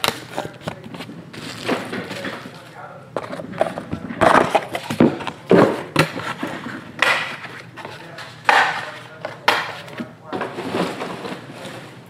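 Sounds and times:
crinkly rustles: 0:00.2 - 0:05.0.

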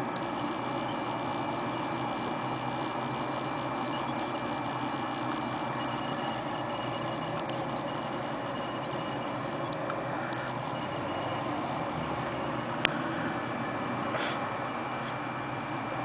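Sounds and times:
engine rumble: 0:00.0 - 0:16.0
hiss: 0:14.1 - 0:14.5.

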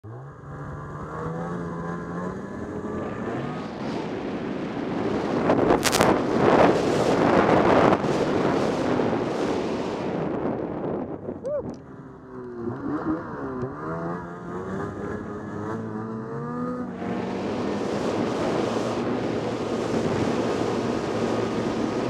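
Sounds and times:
snowmobile engine revving: 0:00.0 - 0:10.8, 0:11.5 - 0:22.0
rushing wind and snow: 0:00.2 - 0:22.0.

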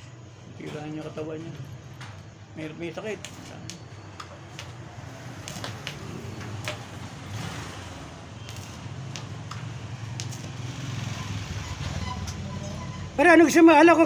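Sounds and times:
welding arc crackling: 0:02.2 - 0:12.4
sharp welding pops: 0:03.2 - 0:10.8.

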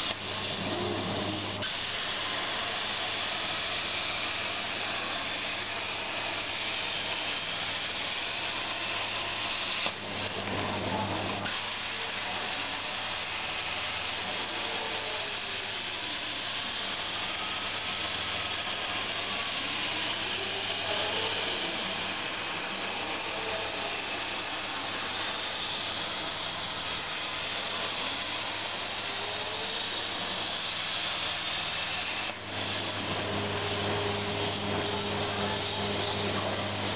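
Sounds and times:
plasma arc hissing: 0:00.0 - 0:36.9
steady hum: 0:16.7 - 0:36.9.

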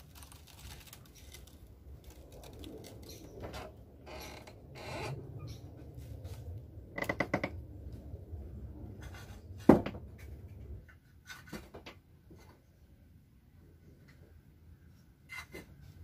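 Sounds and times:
wooden knocks and clatter: 0:07.0 - 0:07.6, 0:09.0 - 0:12.4.

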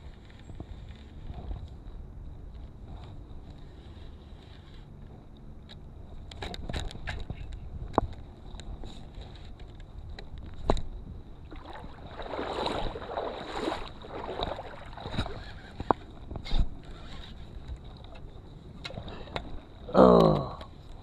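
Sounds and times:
wind: 0:00.0 - 0:21.0
water rushing: 0:11.4 - 0:15.5.

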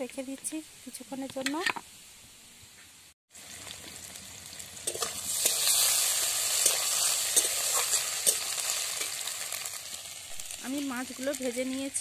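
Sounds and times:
vegetables sizzling in oil: 0:03.3 - 0:12.0
spatula scraping and tapping pan: 0:06.6 - 0:09.2.

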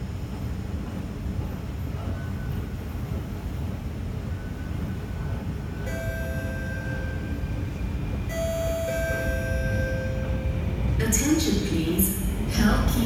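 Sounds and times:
metro train low rumble: 0:00.0 - 0:13.0.

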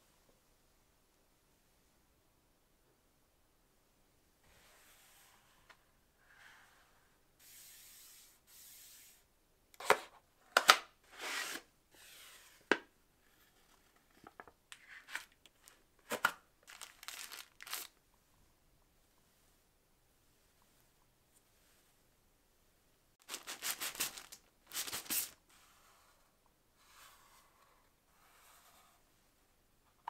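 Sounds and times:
soft sliding rubs: 0:06.4 - 0:09.3, 0:20.3 - 0:22.1, 0:25.5 - 0:29.4
cardboard and plastic rustling: 0:14.2 - 0:18.0, 0:23.2 - 0:25.4
packaging ripping and crinkling: 0:15.2 - 0:18.0, 0:23.2 - 0:25.4.

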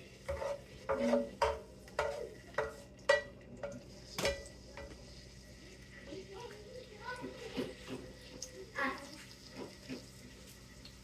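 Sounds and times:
utensils knocking on skillet: 0:00.2 - 0:05.0.

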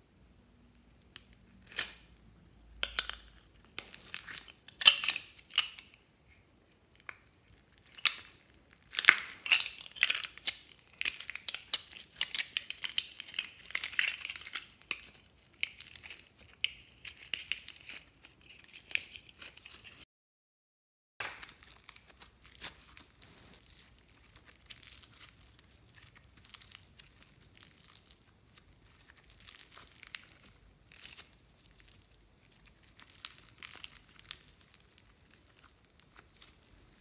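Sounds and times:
plastic containers crinkling and clicking: 0:02.8 - 0:06.0
sticky slime crackling: 0:02.9 - 0:20.0, 0:21.2 - 0:37.0.

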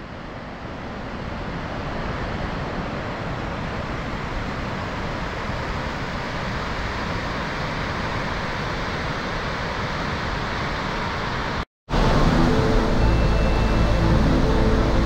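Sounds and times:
river and waterfall rushing: 0:02.8 - 0:15.0.

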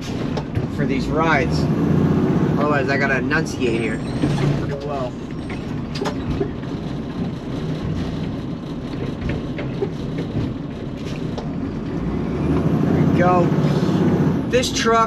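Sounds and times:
knocks and clunks of cart: 0:00.0 - 0:02.0, 0:02.6 - 0:13.4
garbage truck engine and hydraulics: 0:00.0 - 0:15.0.

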